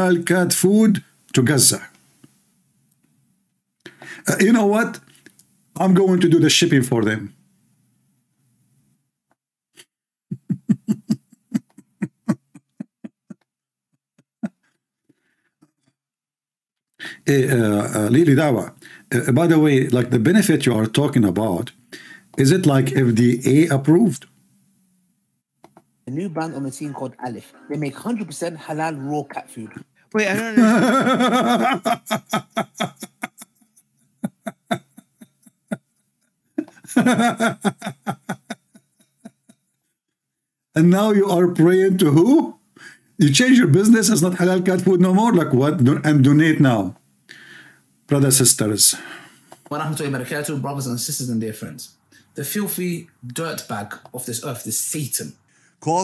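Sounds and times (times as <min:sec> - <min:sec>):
man speaking: 0:00.0 - 0:01.9, 0:17.0 - 0:21.8, 0:22.4 - 0:24.3, 0:26.1 - 0:31.8, 0:43.2 - 0:47.0, 0:48.1 - 0:49.0, 0:49.7 - 0:56.0
man laughing: 0:10.3 - 0:13.5, 0:30.4 - 0:39.7.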